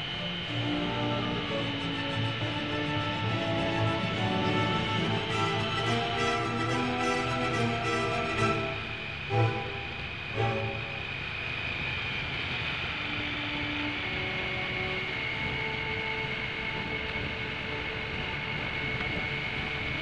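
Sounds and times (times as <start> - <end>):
wind rush on microphone: 11.4 - 20.0.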